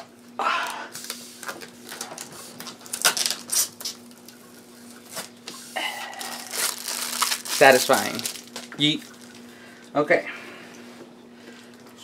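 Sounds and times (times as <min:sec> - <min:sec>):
low steady hum: 0:00.0 - 0:12.0
plastic film peeling: 0:01.0 - 0:04.4, 0:06.0 - 0:09.4.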